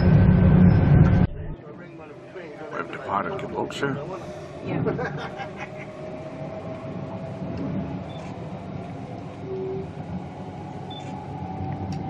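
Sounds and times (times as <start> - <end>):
train wheels rumbling on rail: 2.8 - 12.0.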